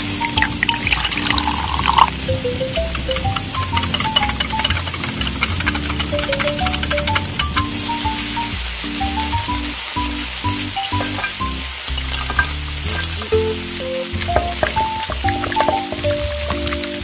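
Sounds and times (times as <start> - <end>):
sauce sizzling in wok: 0.0 - 17.0
spoon clicking on pan: 14.4 - 16.8.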